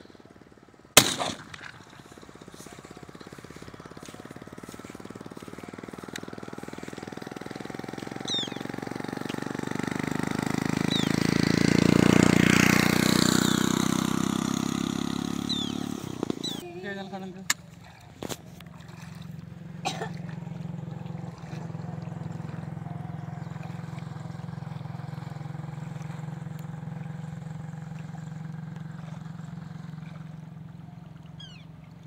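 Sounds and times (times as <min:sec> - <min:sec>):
shotgun shot: 0:01.0 - 0:01.8
vehicle engine passing: 0:01.3 - 0:32.0
short high bird calls: 0:08.2 - 0:08.8, 0:10.8 - 0:11.2, 0:15.4 - 0:16.6, 0:31.1 - 0:31.8.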